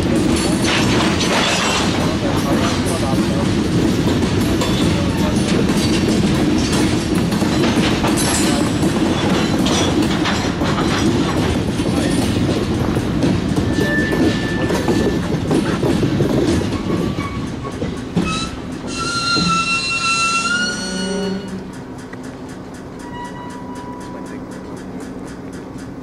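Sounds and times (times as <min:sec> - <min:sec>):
freight train rumbling past: 0:00.0 - 0:26.0
wheels clicking over rail joints: 0:00.0 - 0:26.0
high-pitched wheel squeal: 0:13.7 - 0:15.2, 0:16.8 - 0:21.7, 0:23.0 - 0:24.4.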